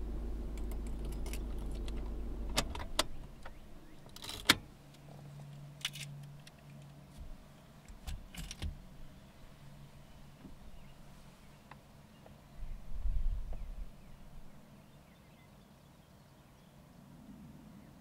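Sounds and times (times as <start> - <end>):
car engine idling: 0.0 - 7.4.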